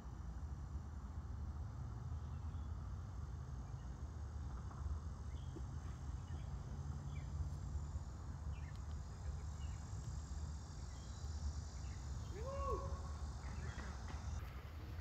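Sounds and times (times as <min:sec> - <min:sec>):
high insect drone: 0:00.0 - 0:15.0
rising then falling call: 0:12.2 - 0:13.5.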